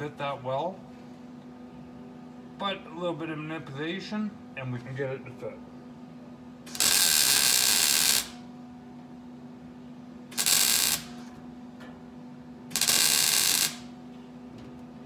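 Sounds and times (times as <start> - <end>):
low steady hum: 0.0 - 15.0
welding arc crackle: 6.7 - 8.4, 10.3 - 11.3, 12.7 - 14.0.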